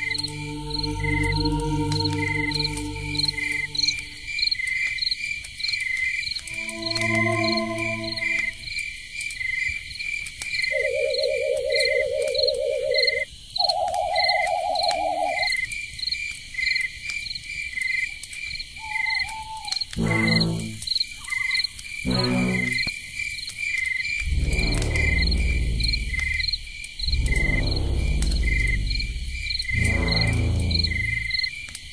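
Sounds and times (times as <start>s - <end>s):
long warbling tones: 0.0s - 4.3s, 24.2s - 31.3s
low croak-like calls: 0.0s - 4.5s, 10.7s - 15.6s, 18.8s - 22.9s, 24.2s - 31.6s
insect chirping: 0.0s - 31.9s.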